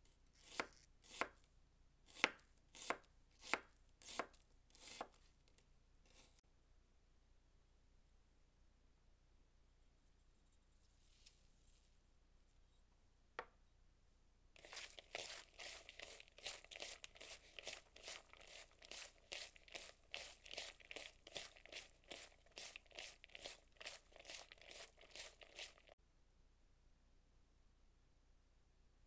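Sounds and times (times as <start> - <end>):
wet crunching of squeezed onion: 14.6 - 26.0.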